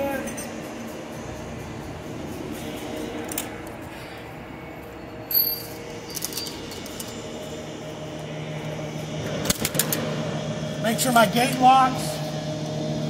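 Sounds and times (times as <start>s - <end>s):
low hum: 0.0s - 13.0s
metal carabiner clinking: 5.3s - 7.2s.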